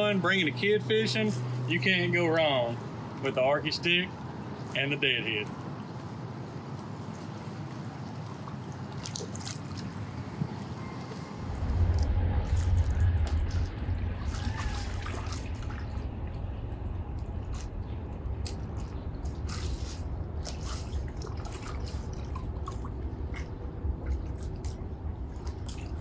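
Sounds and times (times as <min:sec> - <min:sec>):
water lapping and dripping: 0:00.0 - 0:26.0
low rumble: 0:11.2 - 0:26.0.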